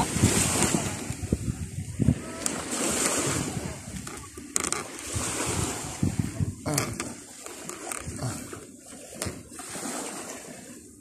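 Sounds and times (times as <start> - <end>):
wind buffeting microphone: 0.0 - 8.6
sea surf washing onto beach: 0.0 - 11.0.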